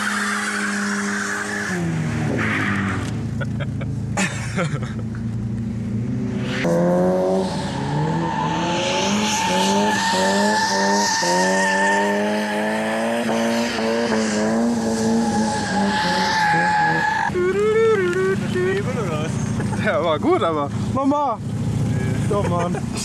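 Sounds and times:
car engine revving: 0.0 - 23.0
tyres squealing: 14.2 - 18.0.

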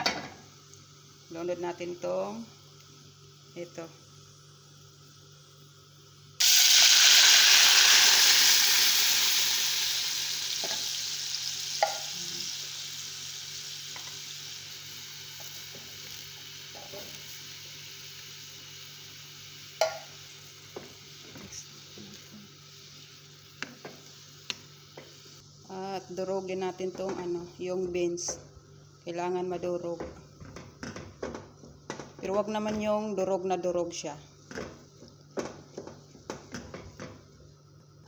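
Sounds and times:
beans sizzling in hot oil: 0.0 - 30.4.

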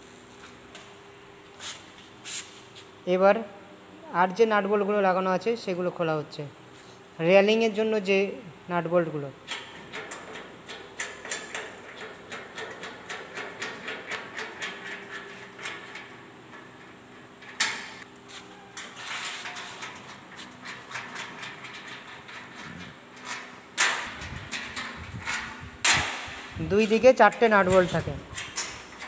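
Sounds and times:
metal clicks and rattles: 9.4 - 18.1, 18.8 - 29.0.

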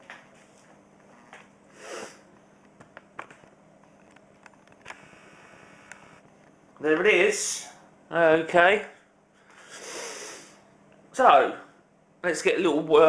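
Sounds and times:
faint steady hum: 0.0 - 13.0
person sniffing: 1.7 - 2.3, 9.5 - 10.6.

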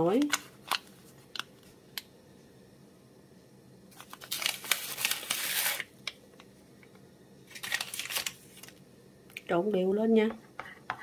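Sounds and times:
paper sachet crinkling: 3.9 - 5.9, 7.5 - 8.8.

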